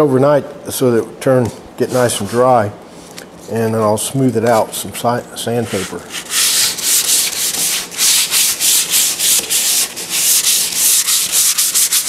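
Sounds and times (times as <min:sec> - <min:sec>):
sandpaper rubbing on wood: 0:05.6 - 0:12.0.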